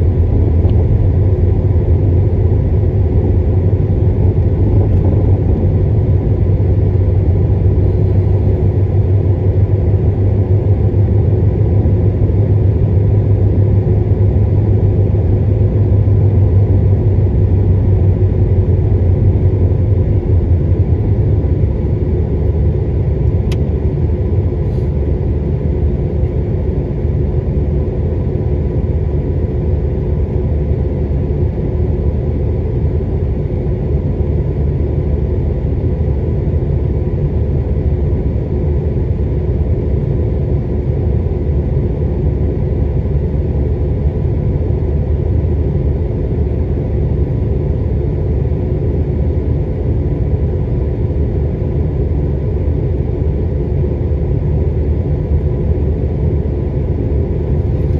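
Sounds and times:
car engine idling: 0:00.0 - 0:10.5
faint constant hum: 0:00.0 - 0:57.9.

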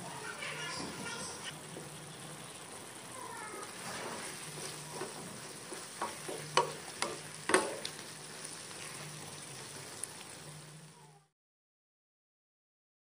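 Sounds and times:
stew sizzling in a frying pan: 0:00.0 - 0:11.3
wooden spoon knocking on a pan: 0:04.5 - 0:07.9.

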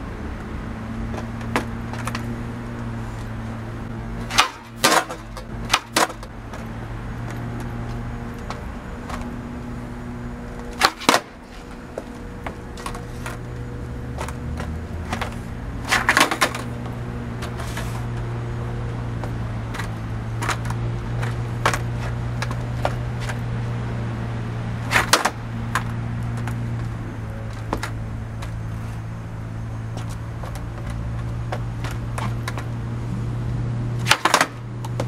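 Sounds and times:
steady low hum: 0:00.0 - 0:35.0
skateboard tail pops: 0:04.2 - 0:06.2, 0:10.7 - 0:13.4, 0:15.9 - 0:16.7, 0:24.9 - 0:26.5, 0:34.0 - 0:35.0
skateboard clattering on concrete: 0:04.2 - 0:06.7, 0:10.7 - 0:13.4, 0:14.2 - 0:16.8, 0:19.2 - 0:23.4, 0:24.9 - 0:26.6, 0:34.0 - 0:35.0.

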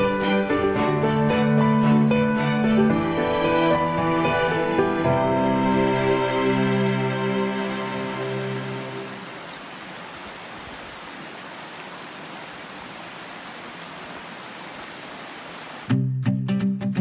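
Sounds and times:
creek water rushing over rocks: 0:07.6 - 0:15.9
plucked guitar music: 0:15.9 - 0:17.0.

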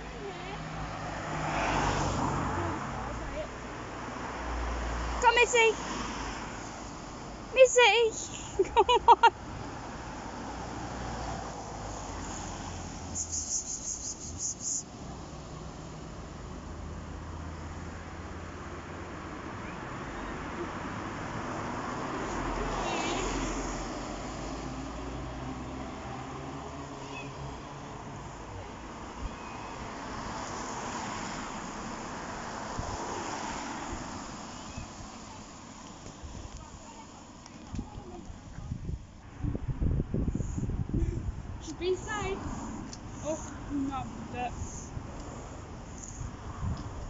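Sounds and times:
distant road traffic rumble: 0:00.0 - 0:47.0
steady outdoor rushing noise: 0:00.0 - 0:47.0
high thin chirps: 0:13.0 - 0:14.9
wind thumps on microphone: 0:37.6 - 0:43.1, 0:46.2 - 0:47.0.

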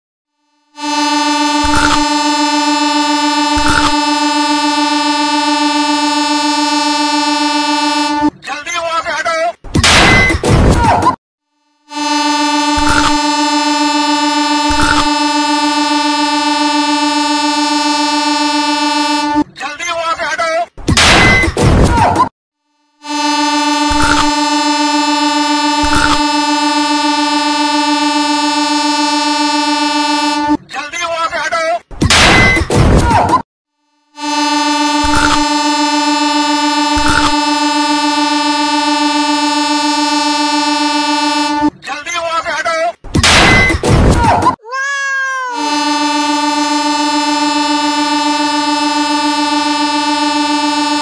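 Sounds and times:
train horn steady note: 0:00.6 - 0:08.4, 0:11.8 - 0:19.5, 0:23.0 - 0:30.6, 0:34.0 - 0:41.8, 0:45.4 - 0:51.0.

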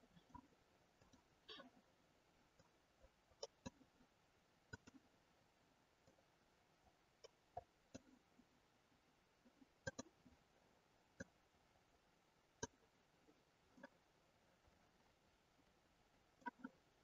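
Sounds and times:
mouse and keyboard clicks: 0:04.7 - 0:05.0, 0:09.8 - 0:10.2.

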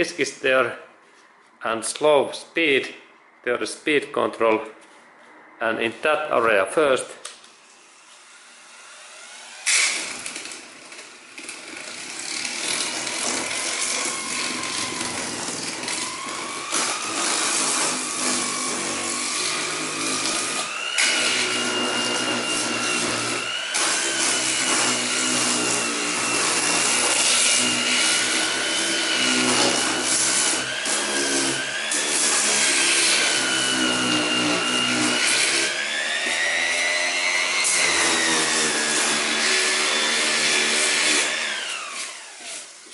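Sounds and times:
orbital sander motor whine: 0:08.9 - 0:10.4, 0:13.1 - 0:42.8.

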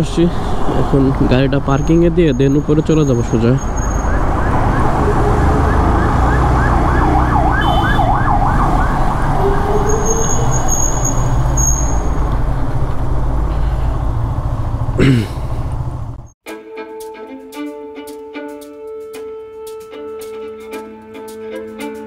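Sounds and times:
electronic siren whooping and wailing: 0:03.8 - 0:11.9
motorcycle engine running: 0:12.3 - 0:16.4.

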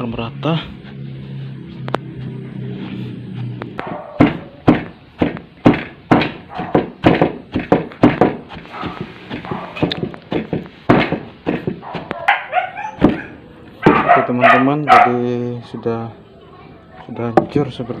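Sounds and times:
pestle thudding in wooden mortar: 0:03.8 - 0:12.2, 0:13.0 - 0:14.0.

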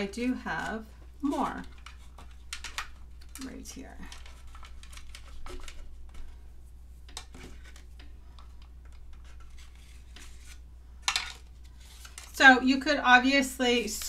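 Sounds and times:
paper supplies tapping and scraping: 0:00.0 - 0:06.4
low steady hum: 0:00.0 - 0:14.0.

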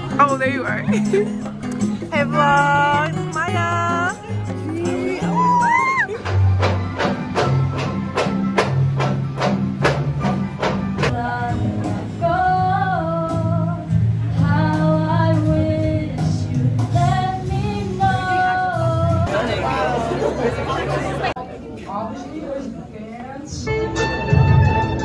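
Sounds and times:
person singing: 0:02.2 - 0:06.2.

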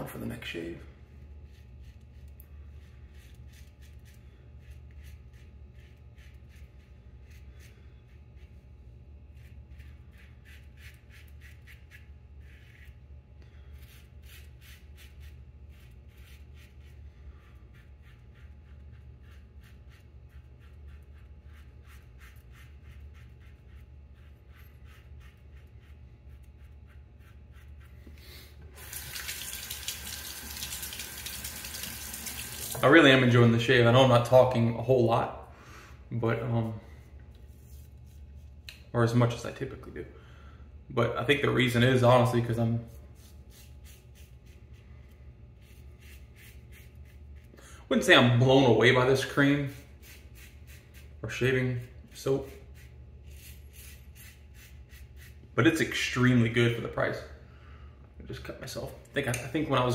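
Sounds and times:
razor scraping stubble: 0:13.7 - 0:28.2, 0:45.6 - 0:47.5, 0:49.1 - 0:55.5
tap water running into sink: 0:28.8 - 0:32.8.

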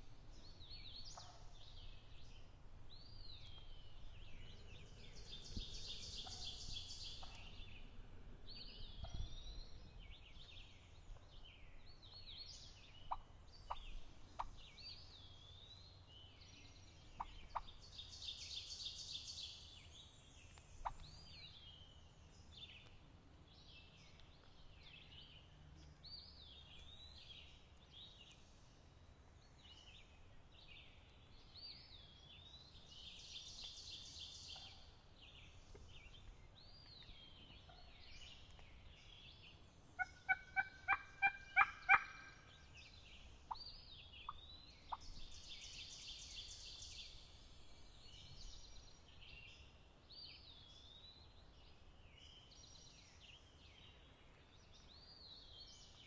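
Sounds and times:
songbirds singing: 0:00.0 - 0:56.0
wild turkey calling: 0:13.1 - 0:14.6, 0:40.0 - 0:42.7.

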